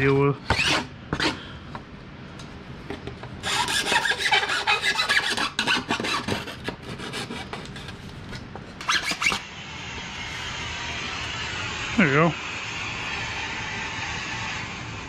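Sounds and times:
hand file rasping: 0.5 - 1.4, 3.4 - 8.0, 8.8 - 9.4.

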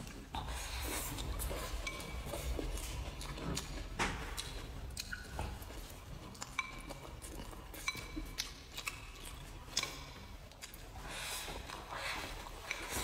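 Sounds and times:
person chewing food: 0.0 - 13.0
chopsticks clinking on bowl: 1.8 - 2.4, 6.4 - 7.1.

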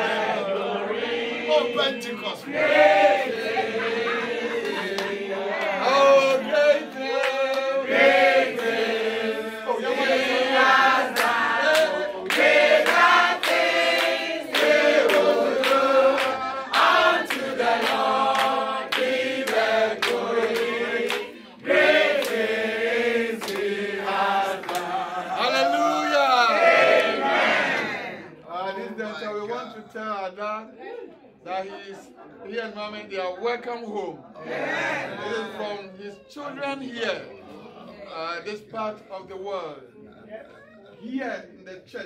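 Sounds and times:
men and women singing in chorus: 0.0 - 25.6.

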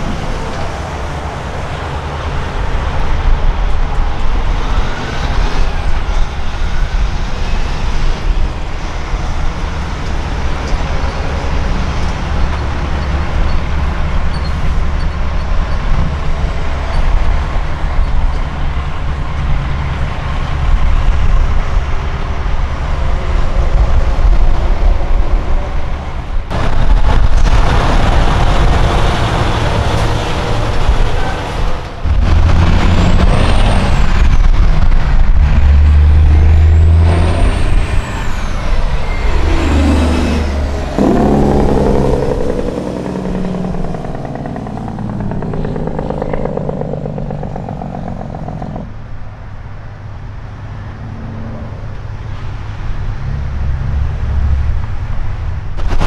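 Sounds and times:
diesel trucks driving past: 0.0 - 56.0.

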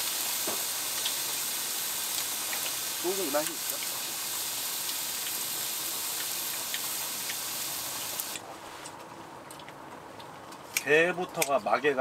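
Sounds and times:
meat sizzling on a griddle: 0.0 - 8.4.

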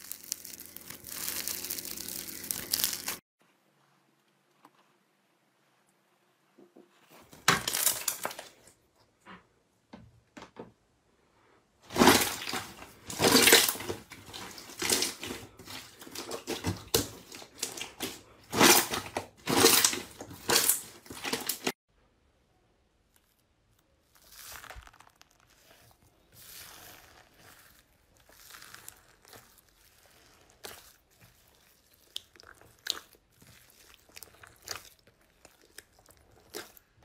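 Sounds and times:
foam-bead slime crunching: 0.0 - 3.2, 11.9 - 21.8, 23.1 - 37.0
slime crackling and popping: 0.0 - 3.2, 23.2 - 37.0.

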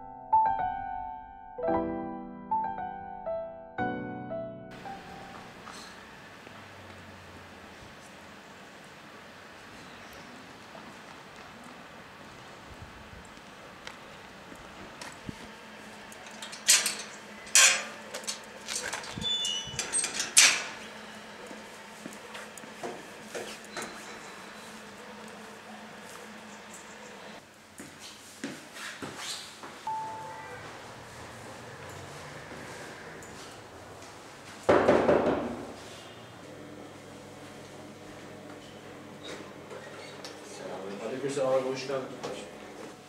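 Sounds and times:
slow piano music: 0.0 - 6.1, 29.9 - 32.1
gate rattling: 16.1 - 21.0
metal gate clanking: 16.1 - 21.0
gate squeaking: 16.2 - 21.1, 29.9 - 33.5.

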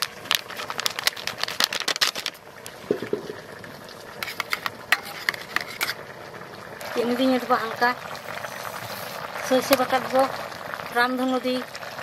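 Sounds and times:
spatula scraping steel bowl: 4.2 - 6.0.

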